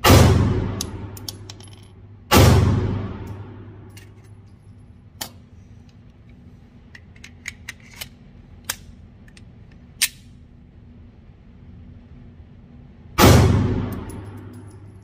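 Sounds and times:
pistol shot echo: 0.0s - 1.2s, 2.3s - 3.9s, 13.2s - 14.6s.

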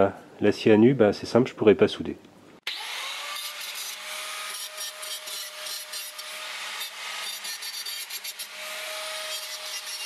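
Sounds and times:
angle grinder grinding metal: 2.7s - 10.0s
grinder whine: 2.7s - 10.0s.

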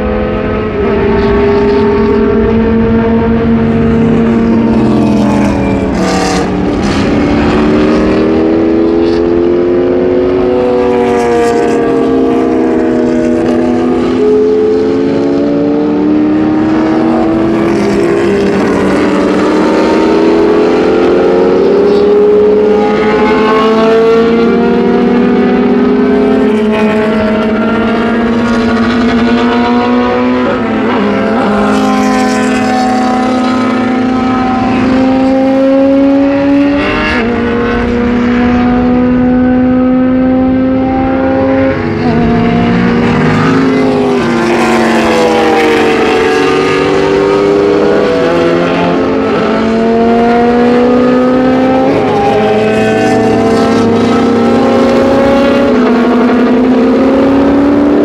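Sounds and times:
racing cars accelerating: 0.0s - 58.0s.

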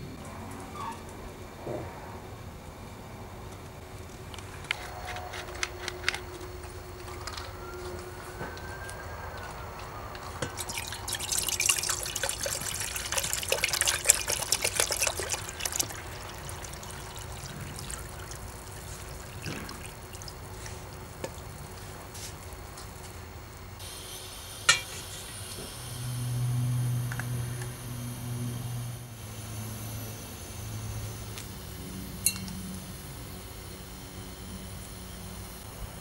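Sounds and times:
liquid pouring into mug: 10.4s - 22.0s
mug clinking on stove: 24.7s - 25.0s, 32.2s - 32.5s.

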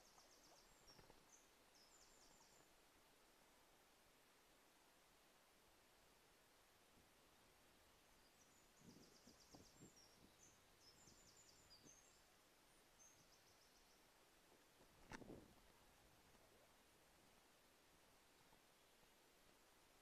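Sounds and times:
distant bird song: 0.0s - 2.8s, 8.0s - 14.3s
low background hiss: 0.0s - 20.0s.

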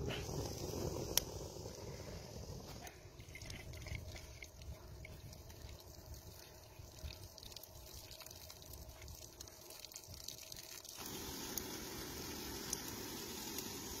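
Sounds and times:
water trickling and running: 3.2s - 14.0s.

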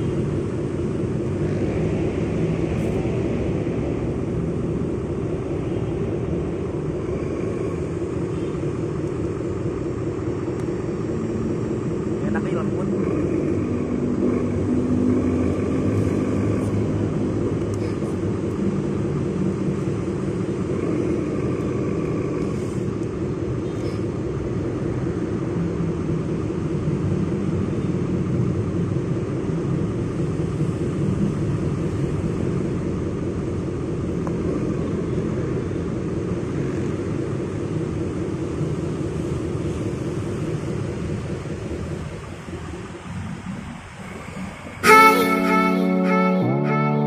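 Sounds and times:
toy truck motors rumbling: 11.0s - 24.0s.

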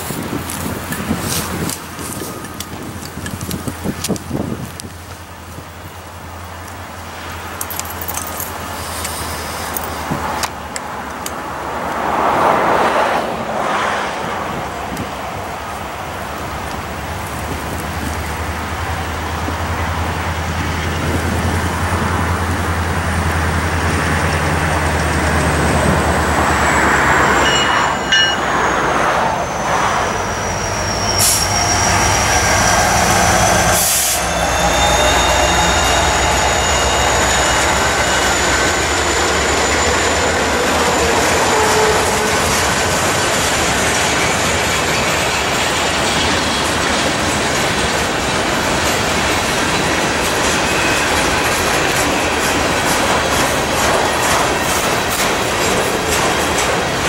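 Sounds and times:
diesel locomotives droning: 0.0s - 57.0s
train wheel clatter: 0.0s - 57.0s
high steady squeal: 24.0s - 57.0s.

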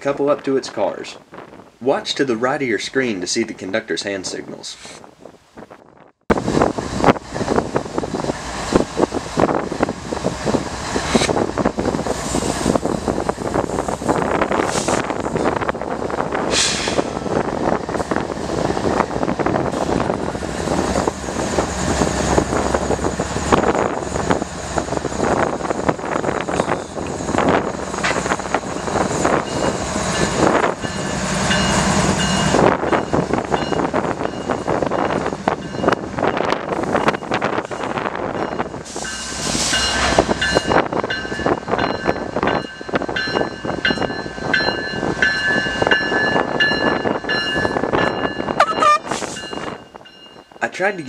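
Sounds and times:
diesel locomotive engines rumbling: 0.0s - 51.0s
bell ringing: 39.8s - 50.8s.

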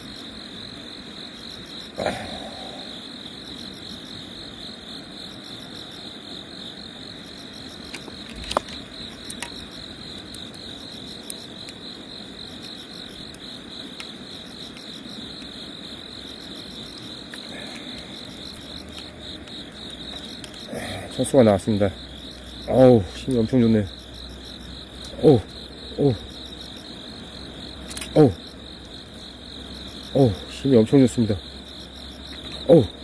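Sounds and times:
crickets chirping: 0.0s - 33.0s
sharp clicks: 27.8s - 28.2s.

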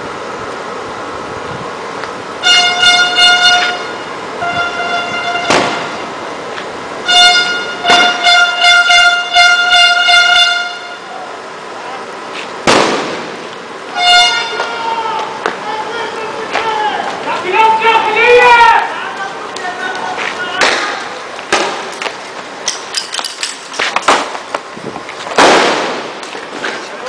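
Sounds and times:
vehicle horn honking: 2.4s - 6.2s, 7.0s - 11.2s, 13.9s - 15.0s
sharp echoing bangs: 5.4s - 6.0s, 7.8s - 8.5s, 12.6s - 13.5s, 20.6s - 22.0s, 25.3s - 26.2s.

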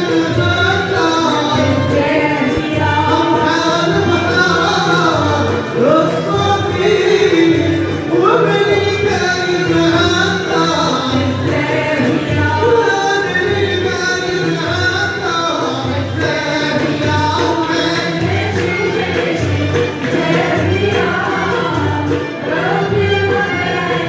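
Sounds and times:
ouds violins and cello playing: 0.0s - 15.6s
voices singing together: 0.0s - 24.0s.

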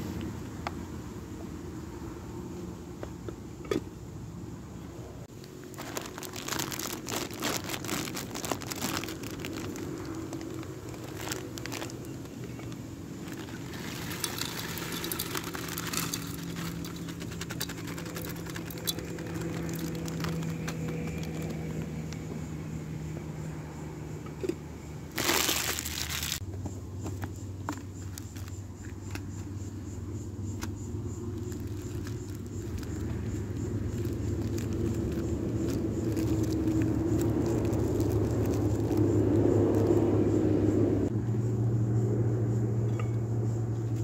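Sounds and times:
plastic packet crinkling: 5.3s - 21.9s, 25.1s - 26.4s, 28.0s - 28.5s, 31.3s - 40.0s.

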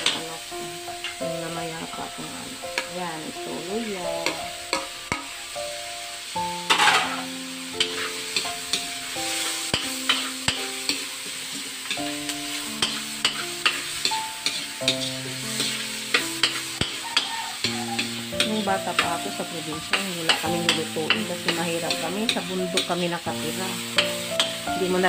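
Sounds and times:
food sizzling in a wok: 0.0s - 25.0s
soft background music: 0.0s - 25.0s
metal spatula scraping a pan: 1.0s - 1.4s, 3.8s - 5.6s, 6.6s - 23.0s, 23.8s - 24.6s.

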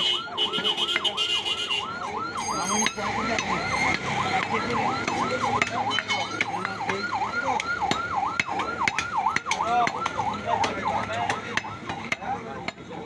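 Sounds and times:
warbling siren wailing: 0.0s - 13.0s
cleaver chopping meat on wood: 2.7s - 13.0s.

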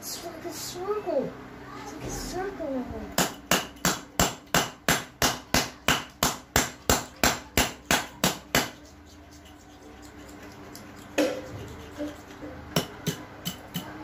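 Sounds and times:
iron rod hammering on concrete: 3.2s - 8.8s, 12.7s - 14.0s.

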